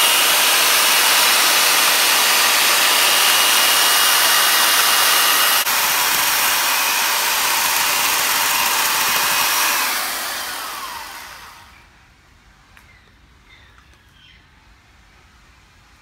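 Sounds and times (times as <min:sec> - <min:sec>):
electric chainsaw running: 0:00.0 - 0:11.8.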